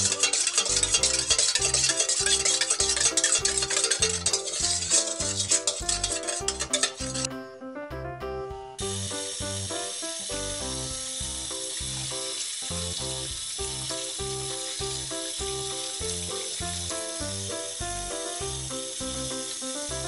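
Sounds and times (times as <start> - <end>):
music with bass beat: 2.9 - 19.3
tap running into sink: 8.9 - 17.4.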